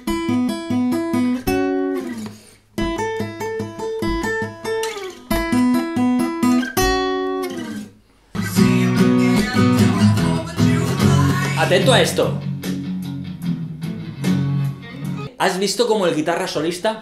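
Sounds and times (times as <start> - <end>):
acoustic guitar blues riff: 0.0 - 15.4.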